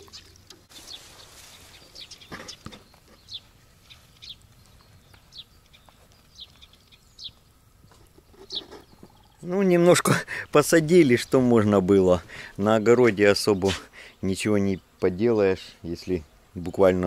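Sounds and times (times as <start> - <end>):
small bird calling: 0.0 - 9.5
faint outdoor background: 0.0 - 17.0.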